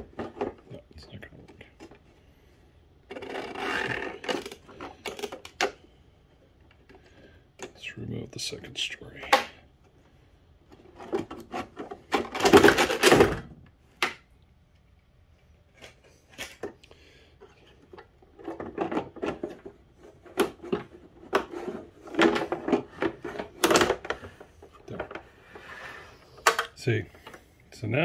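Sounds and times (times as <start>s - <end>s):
rustling scrape: 19.4s - 23.6s.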